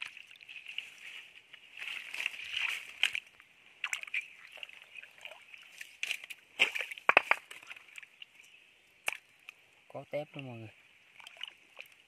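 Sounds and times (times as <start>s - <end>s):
hands splashing in water: 3.8s - 7.8s.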